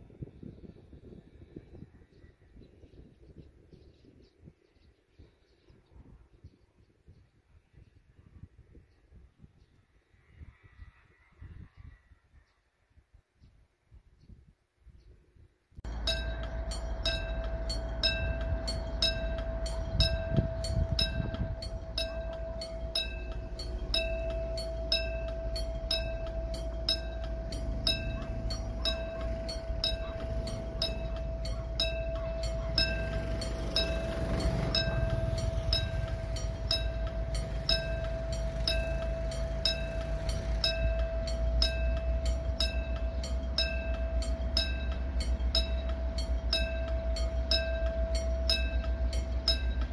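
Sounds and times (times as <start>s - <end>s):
distant diesel locomotive rumble: 15.8s - 49.9s
steady tone: 15.8s - 49.9s
level crossing warning bell: 15.9s - 49.9s.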